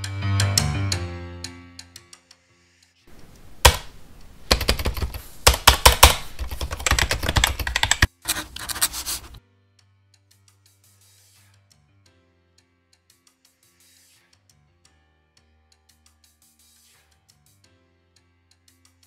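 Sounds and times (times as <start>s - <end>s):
computer keyboard typing: 3.1s - 9.4s.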